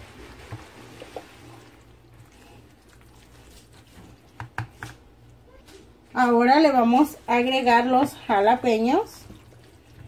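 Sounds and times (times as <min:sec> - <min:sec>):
spatula squishing thick salad: 0:02.2 - 0:05.8
spatula knocking against bowl: 0:04.4 - 0:04.9.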